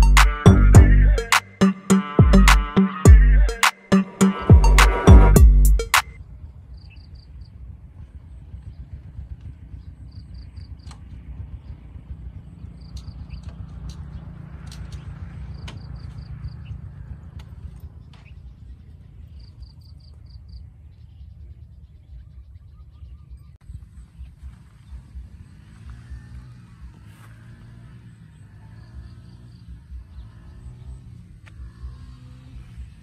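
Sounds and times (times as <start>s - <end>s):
scooter engine running: 7.3s - 22.1s, 23.7s - 33.0s.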